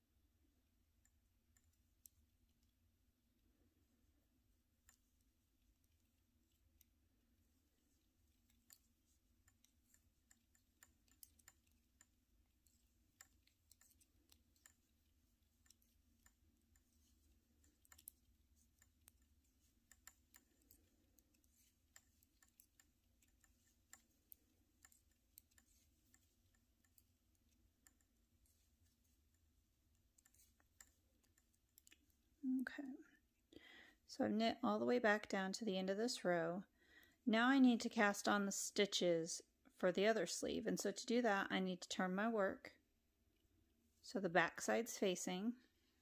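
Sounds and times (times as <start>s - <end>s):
low room hum: 0.0s - 46.0s
knitting needles clicking: 0.9s - 3.1s, 3.8s - 33.6s.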